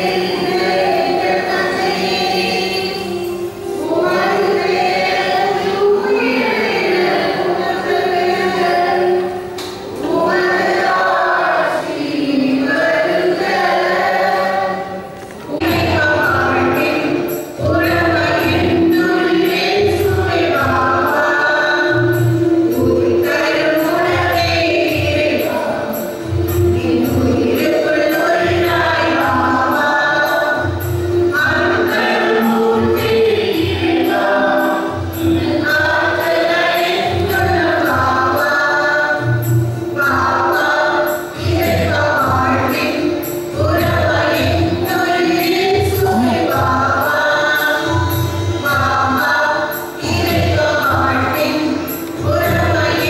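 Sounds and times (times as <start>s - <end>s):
choir singing a hymn: 0.0s - 53.0s
steady percussion beat: 15.6s - 53.0s.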